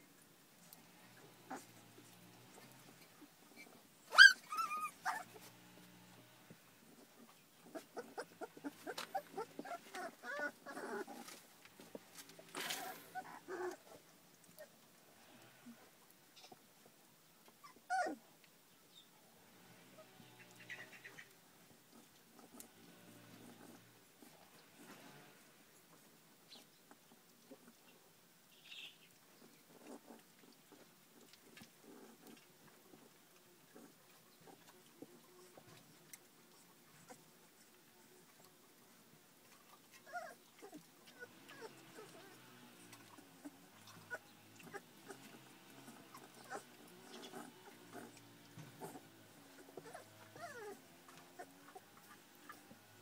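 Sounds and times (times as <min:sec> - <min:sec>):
puppies whimpering and squeaking: 0:01.5 - 0:05.5, 0:07.6 - 0:11.4, 0:12.4 - 0:14.0, 0:17.6 - 0:18.2, 0:39.9 - 0:52.9
puppy squeak: 0:04.1 - 0:05.4
brief rustle: 0:08.8 - 0:13.2.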